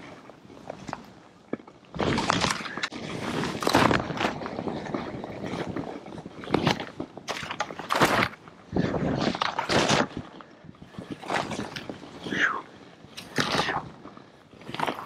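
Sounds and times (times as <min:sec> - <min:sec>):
skis scraping through snow: 0:02.0 - 0:12.2.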